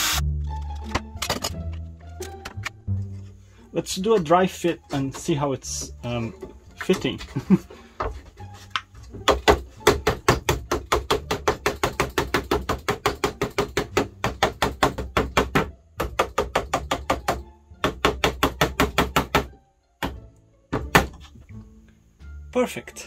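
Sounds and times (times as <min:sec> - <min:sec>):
rubber mallet tapping wood: 0:08.7 - 0:20.2.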